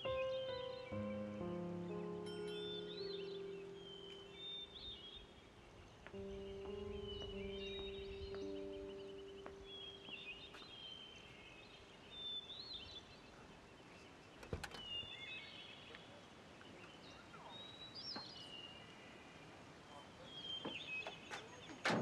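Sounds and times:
low music chord: 0.0s - 10.8s
birds chirping and twittering: 0.0s - 22.0s.

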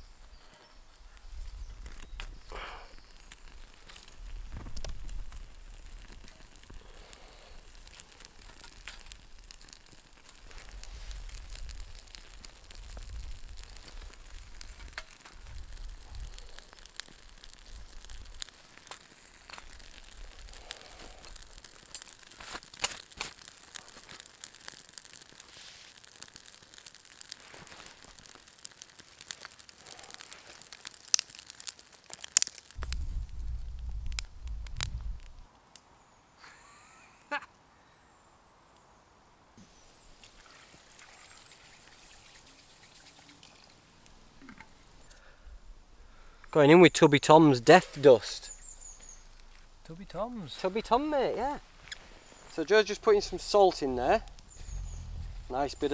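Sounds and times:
wood fire crackling: 0.0s - 37.7s, 39.5s - 55.9s
low wind rumble: 10.6s - 18.4s, 32.8s - 35.5s, 53.2s - 55.9s.

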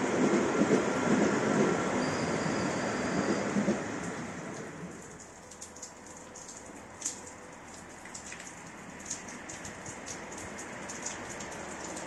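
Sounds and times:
train rumbling: 0.0s - 5.2s
rain pattering and dripping: 3.6s - 12.0s.

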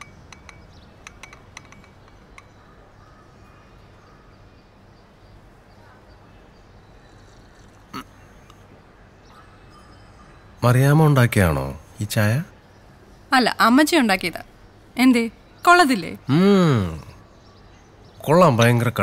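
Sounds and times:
ceramic mug clicks: 0.0s - 2.6s.

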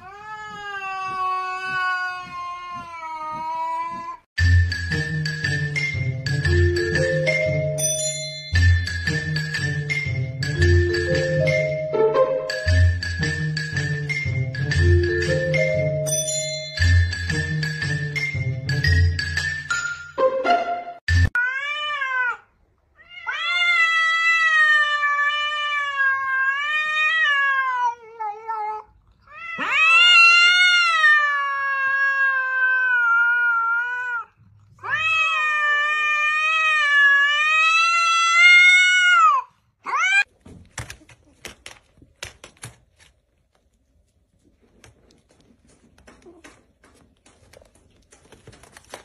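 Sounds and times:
cats yowling: 0.0s - 4.3s, 21.4s - 40.3s.

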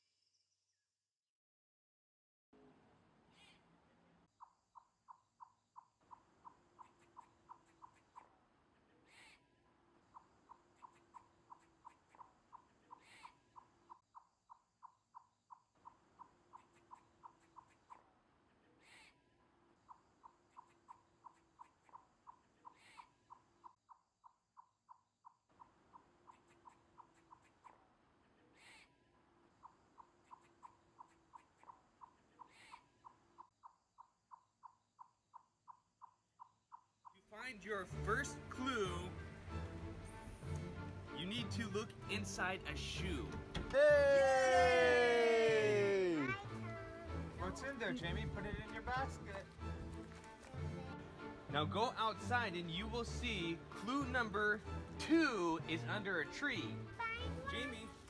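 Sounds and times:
rapid pulsing animal call: 4.4s - 8.4s, 10.1s - 18.1s, 18.8s - 27.9s.

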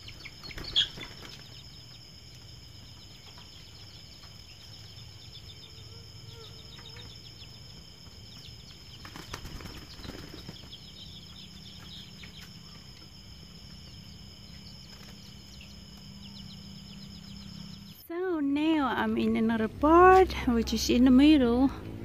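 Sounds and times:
insects chirping: 0.0s - 22.0s.

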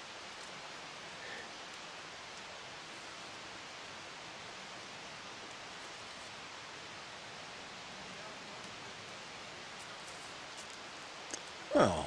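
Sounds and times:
low steady hiss: 0.0s - 12.0s.

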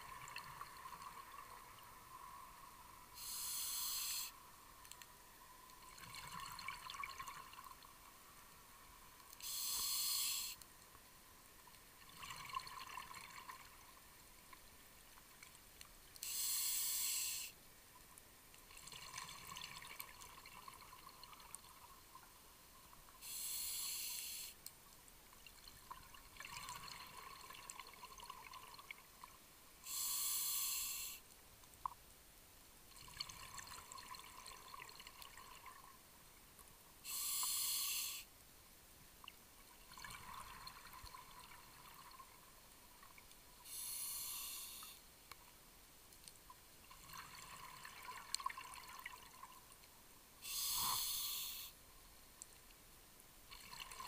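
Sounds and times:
regulator inhalation hiss: 3.2s - 4.4s, 9.4s - 10.6s, 16.2s - 17.6s, 23.2s - 24.6s, 29.8s - 31.2s, 37.0s - 38.3s, 43.6s - 45.0s, 50.4s - 51.8s
exhaled bubbles gurgling: 5.8s - 7.8s, 12.0s - 13.8s.

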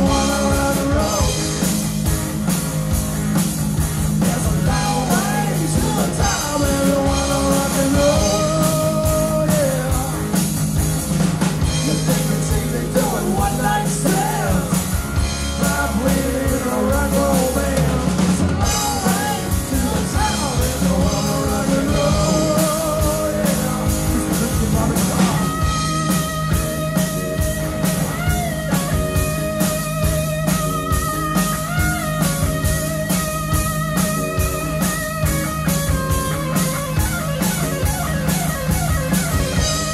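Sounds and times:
male lead vocal: 0.0s - 1.7s, 4.2s - 10.5s, 11.6s - 25.9s
bass guitar: 0.0s - 39.9s
drum kit: 0.0s - 39.9s
electric guitar: 0.0s - 39.9s.

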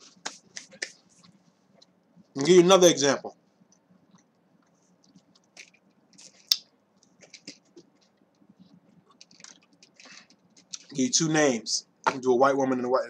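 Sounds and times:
plastic bottle crinkling: 5.1s - 8.2s, 9.0s - 11.0s.

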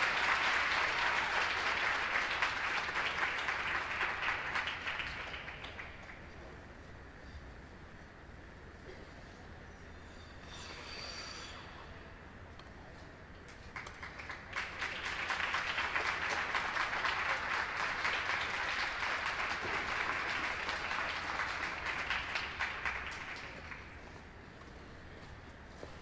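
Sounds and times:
audience clapping: 0.0s - 6.4s, 13.4s - 24.3s.

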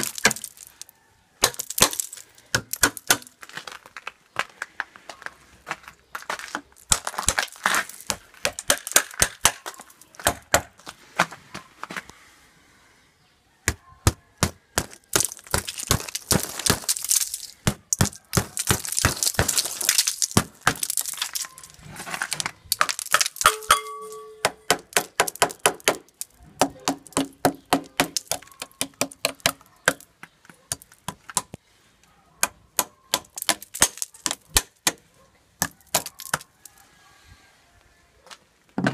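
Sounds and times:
metal tool chipping ice: 14.8s - 30.0s
ice shards breaking away: 15.2s - 23.7s.

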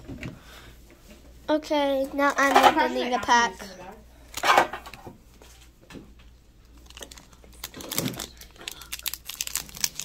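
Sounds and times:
foil wrapper crinkling: 6.6s - 10.0s.

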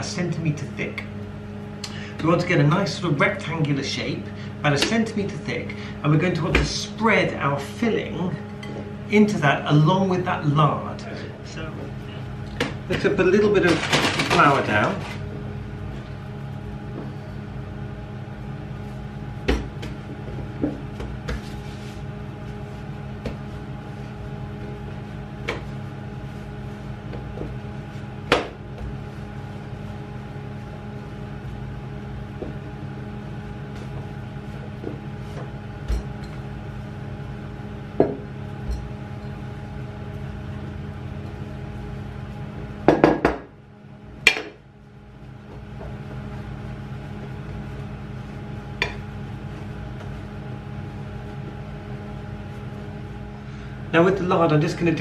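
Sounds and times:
steady low hum: 0.0s - 55.0s
rolling pin knocking on wood: 19.4s - 21.5s, 28.2s - 29.0s, 32.4s - 32.8s, 38.0s - 38.3s, 42.9s - 43.5s.

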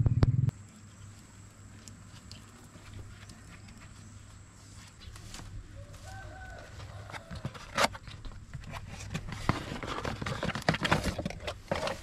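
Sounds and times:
cardboard box being opened: 6.6s - 12.0s.

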